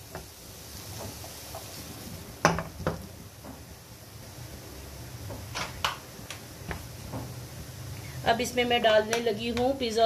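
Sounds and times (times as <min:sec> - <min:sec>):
spatula stirring food in pan: 0:00.0 - 0:08.0.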